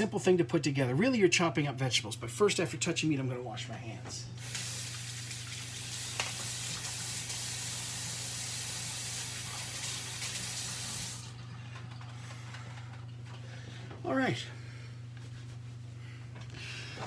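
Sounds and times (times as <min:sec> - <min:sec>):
tap water running: 0:04.4 - 0:11.6.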